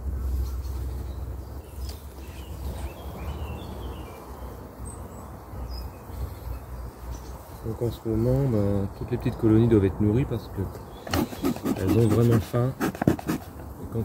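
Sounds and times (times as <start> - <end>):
bird chirps: 0.0 - 7.6, 10.7 - 12.3
honeybees humming: 0.0 - 7.6.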